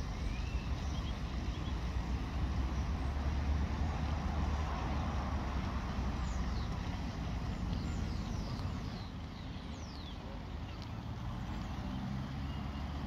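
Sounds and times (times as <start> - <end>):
faint high bird calls: 0.1 - 1.8.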